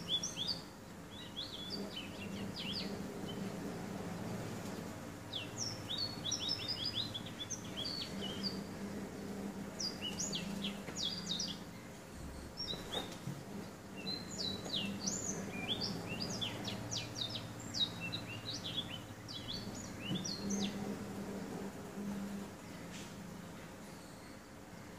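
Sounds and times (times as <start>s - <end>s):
canary twittering song: 0.0s - 3.5s, 5.3s - 8.7s, 9.8s - 20.9s.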